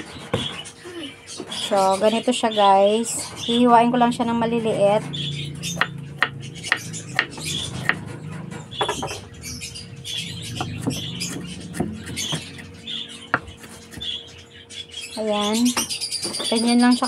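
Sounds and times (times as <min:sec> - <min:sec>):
knife chopping on wooden board: 0:05.8 - 0:08.1, 0:10.6 - 0:12.7.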